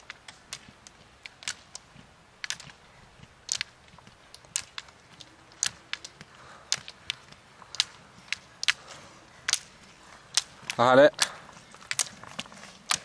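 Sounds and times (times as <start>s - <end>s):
ski poles clicking on asphalt: 0.0s - 13.0s.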